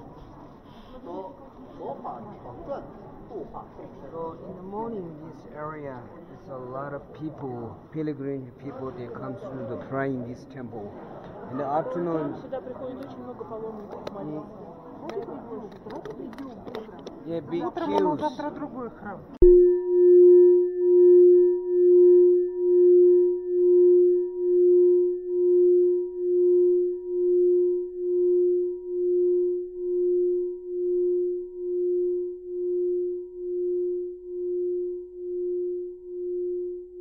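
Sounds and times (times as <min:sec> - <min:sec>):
singing bowl ringing: 0:19.5 - 0:35.8.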